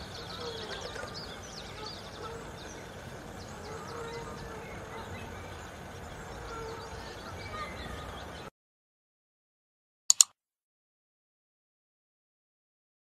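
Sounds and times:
small birds chirping: 0:00.0 - 0:08.5.

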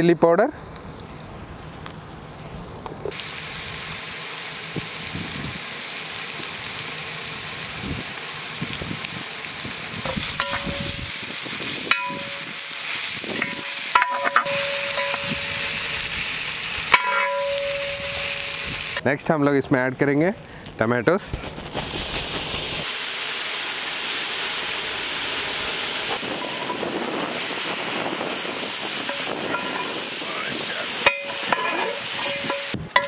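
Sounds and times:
vegetables sizzling in hot oil: 0:03.1 - 0:19.0, 0:21.7 - 0:33.0
metal clanks: 0:13.4 - 0:15.5, 0:16.9 - 0:18.3, 0:29.1 - 0:30.0, 0:31.0 - 0:33.0
ladle scraping metal pot: 0:31.0 - 0:33.0.

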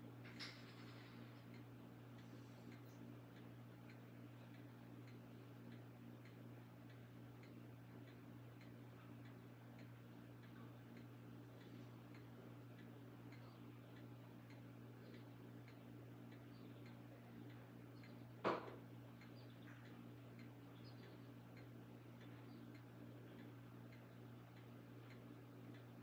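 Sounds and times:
low steady hum: 0:00.0 - 0:26.0
clock ticking: 0:01.0 - 0:26.0.

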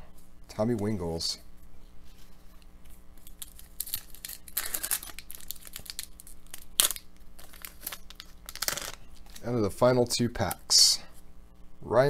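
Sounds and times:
foil wrapper crinkling and tearing: 0:03.2 - 0:09.6.

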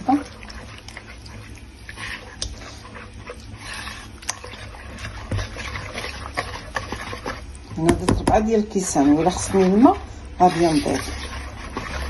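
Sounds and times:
whisk scraping batter: 0:00.0 - 0:12.0
whisk wires clicking on bowl: 0:02.2 - 0:02.6, 0:04.2 - 0:12.0.

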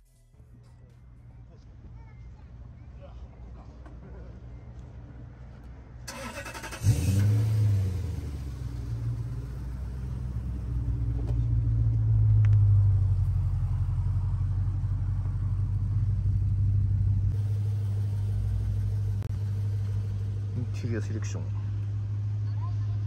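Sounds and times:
car engine starting and idling: 0:06.0 - 0:23.0.

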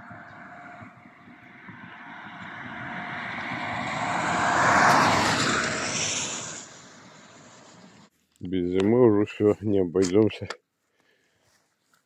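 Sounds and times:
vehicle passing on wet road: 0:00.0 - 0:08.1.

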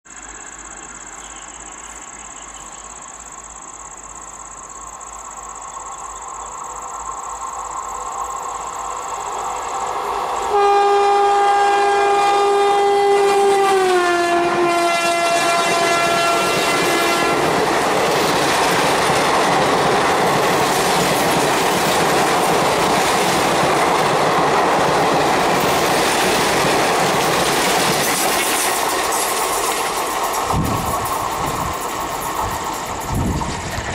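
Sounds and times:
train approaching rumble: 0:00.1 - 0:33.9
train horn: 0:10.5 - 0:17.6
rail clickety-clack: 0:13.2 - 0:33.9.

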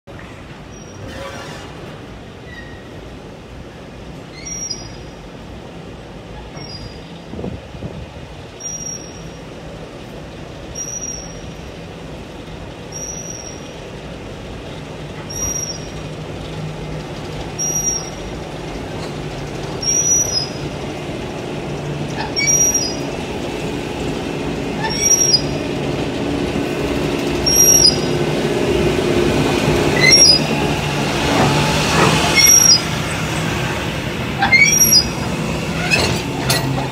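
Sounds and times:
high wheel squeals: 0:00.7 - 0:03.0, 0:12.9 - 0:13.8, 0:15.3 - 0:16.1, 0:17.6 - 0:20.7, 0:22.1 - 0:23.2, 0:24.7 - 0:25.9, 0:27.4 - 0:28.3, 0:29.8 - 0:33.6, 0:34.3 - 0:36.9
diesel locomotive engine running: 0:05.0 - 0:36.9.

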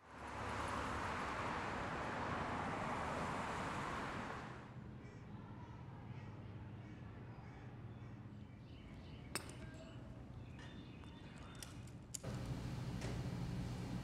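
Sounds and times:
hum and hiss of hall: 0:12.2 - 0:14.0.

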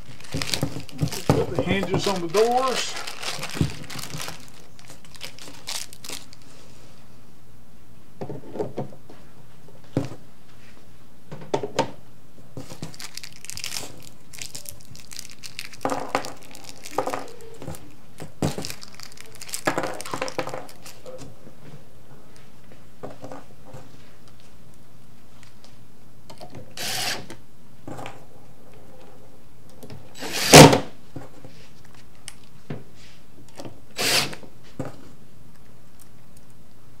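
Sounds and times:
plastic bag crinkling: 0:00.0 - 0:06.6, 0:12.6 - 0:21.2.

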